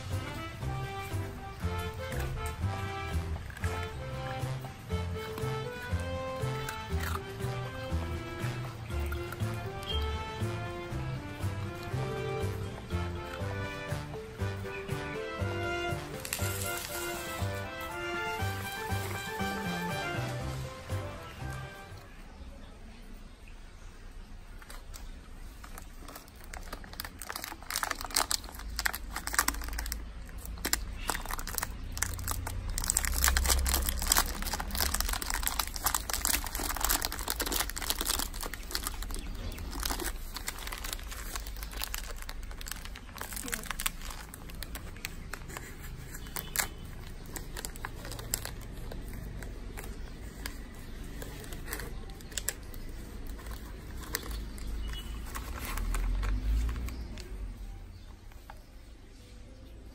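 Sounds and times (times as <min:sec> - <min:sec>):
plastic packet crinkling: 0:05.2 - 0:10.1, 0:16.0 - 0:20.3, 0:24.6 - 0:57.4.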